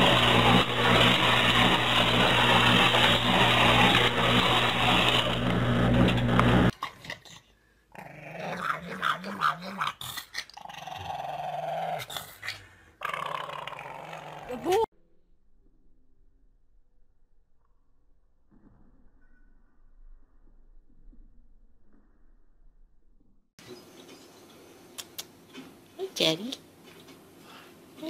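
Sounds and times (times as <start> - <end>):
loud buzzing hum: 0.0 - 6.7
dog growling low: 7.9 - 14.9.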